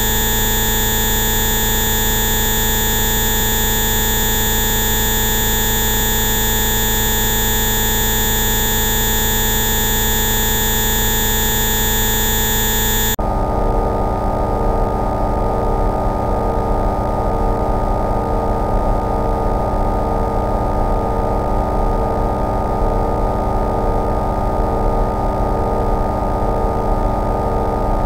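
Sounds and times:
lower synthesized tones: 0.0s - 13.2s
steady synthesized tones: 0.0s - 13.2s.

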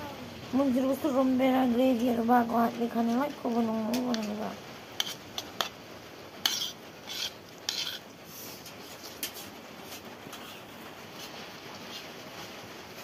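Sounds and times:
metal spoon scraping a plate: 5.0s - 5.8s, 6.4s - 8.0s.

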